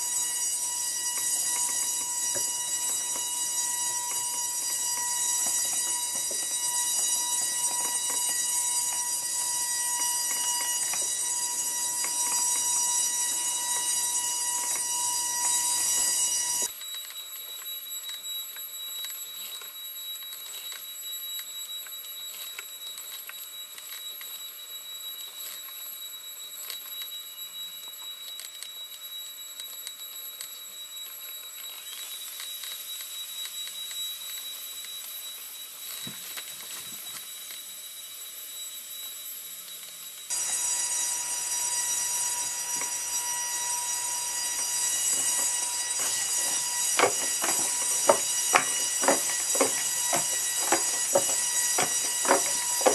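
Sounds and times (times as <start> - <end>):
servos whining: 40.3 - 52.9.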